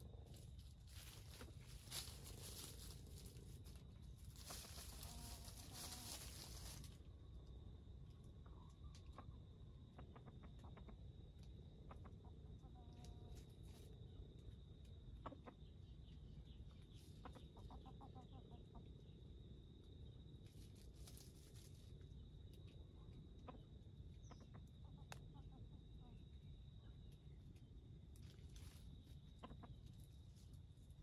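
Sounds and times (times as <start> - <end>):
high insect drone: 0.0 - 8.2
junglefowl clucking: 4.3 - 6.8, 9.9 - 11.0, 11.8 - 13.1, 15.2 - 15.7, 17.2 - 18.9, 23.4 - 26.2, 29.4 - 29.8.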